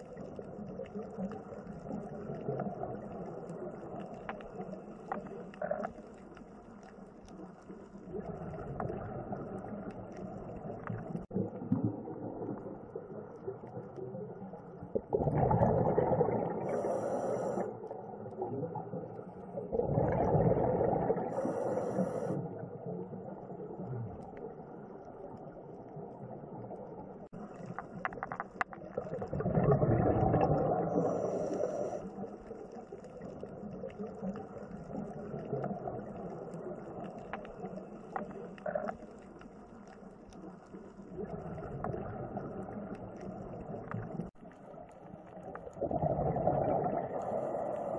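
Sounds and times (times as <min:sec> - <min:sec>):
bubbles and regulator noise: 0:00.0 - 0:47.9
faint underwater background: 0:00.0 - 0:47.9
small clicks: 0:00.1 - 0:09.0, 0:27.5 - 0:29.2, 0:32.5 - 0:42.1.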